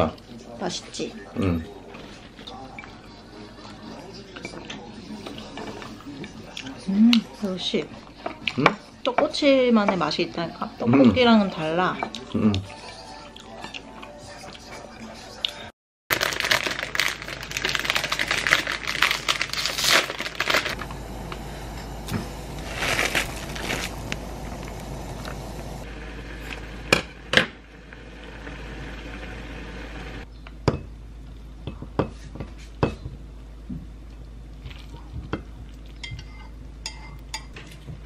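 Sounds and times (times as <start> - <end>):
noodle packet crinkling: 16.1 - 21.4, 22.5 - 25.5.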